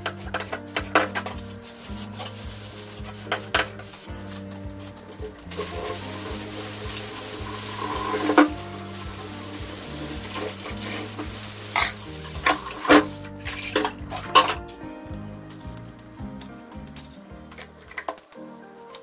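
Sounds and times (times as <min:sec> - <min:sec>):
tap water running into sink: 0:00.0 - 0:14.7.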